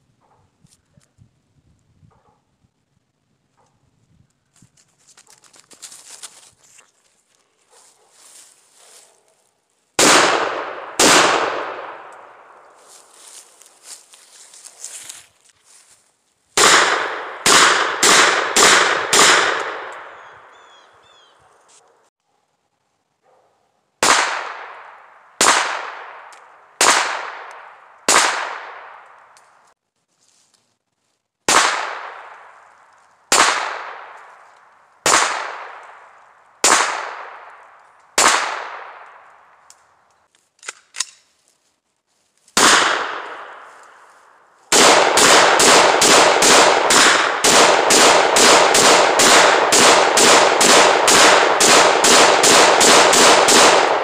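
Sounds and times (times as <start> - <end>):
gunshots with echoing tail: 10.0 - 12.8, 16.6 - 20.6, 24.0 - 29.2, 31.5 - 32.6, 33.3 - 34.3, 35.0 - 39.3, 42.6 - 43.8, 44.7 - 54.0.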